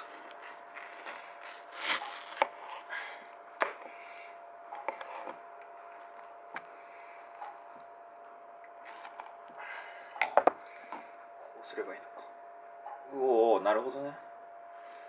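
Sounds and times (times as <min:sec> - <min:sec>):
knife scraping fruit: 0:00.0 - 0:02.9, 0:04.8 - 0:05.4.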